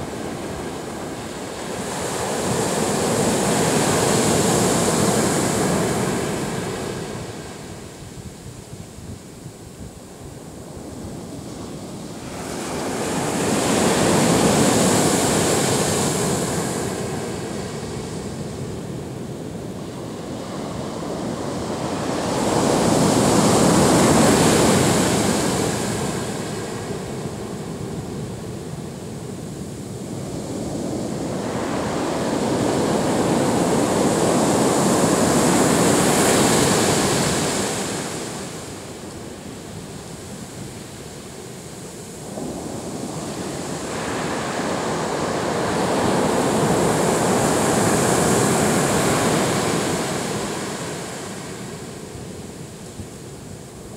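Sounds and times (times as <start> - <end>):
surf breaking on sandy beach: 30.1 - 39.7, 41.9 - 52.1.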